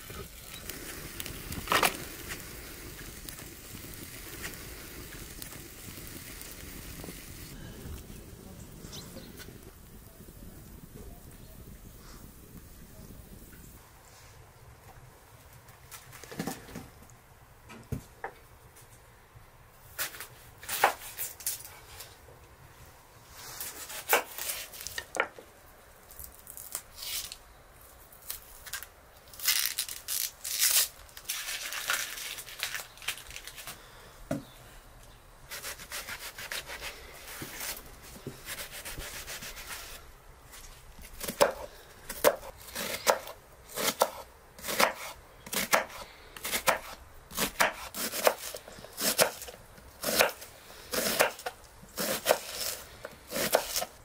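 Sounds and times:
knife scraping onions: 35.5 - 37.8, 38.4 - 40.0, 41.2 - 54.0
knife chopping: 41.2 - 53.9.

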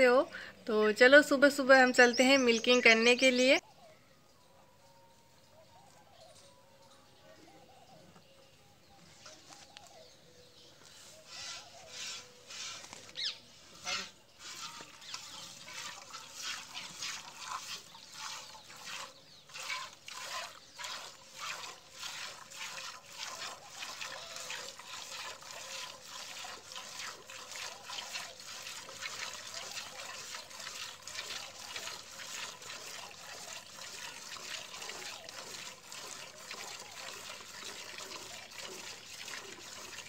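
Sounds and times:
milk squirting into bucket: 13.9 - 40.0.

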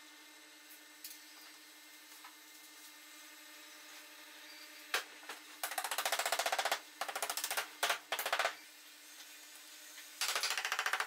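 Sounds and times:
impact driver rattling: 10.2 - 11.0.

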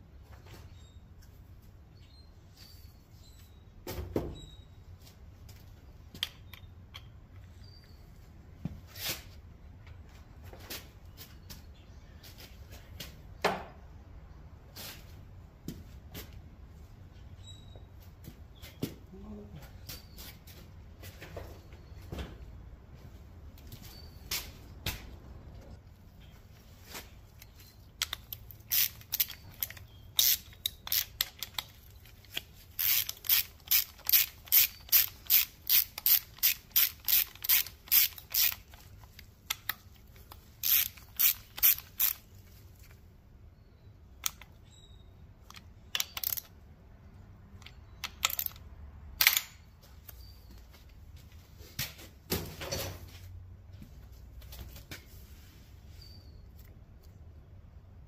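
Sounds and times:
hand ratchet clicking: 28.0 - 42.3, 45.5 - 46.5.

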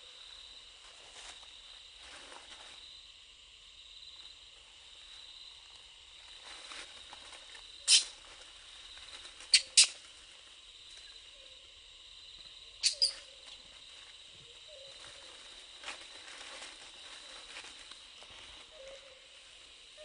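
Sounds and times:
rustling in dry leaves: 0.6 - 3.0, 4.2 - 11.4, 12.9 - 20.0
high-pitched insect drone: 10.7 - 15.7.

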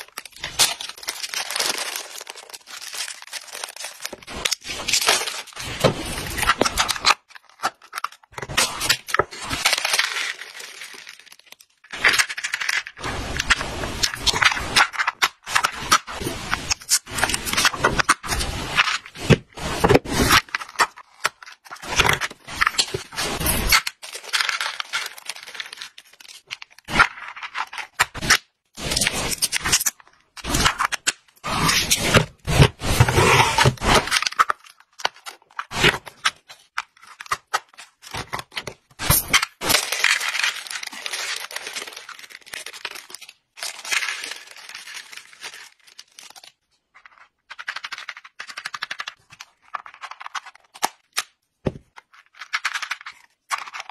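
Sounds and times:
plastic bag tearing and crinkling: 0.0 - 46.6
plastic knocking and scraping: 51.6 - 52.1.

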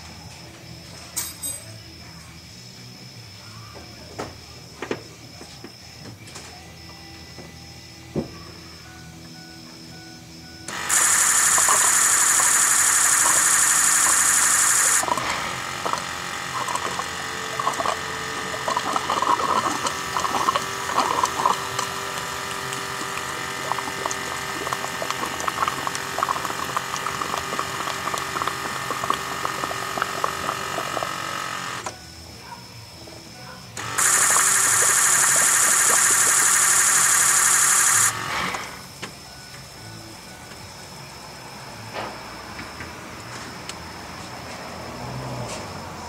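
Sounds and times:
fuel pump humming: 10.5 - 32.6, 33.8 - 40.5
fuel spattering and gurgling: 15.0 - 31.6.

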